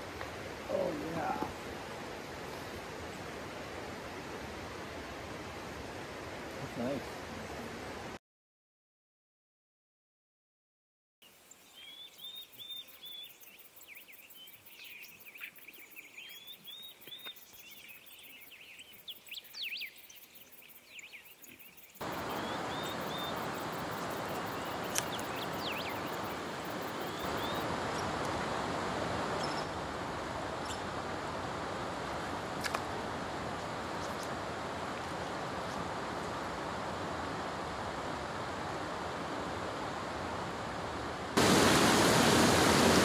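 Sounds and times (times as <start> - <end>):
river water flowing: 0.0 - 8.2, 22.0 - 43.0
small birds chirping: 11.2 - 28.3, 29.3 - 29.8, 30.5 - 30.9, 33.9 - 34.4.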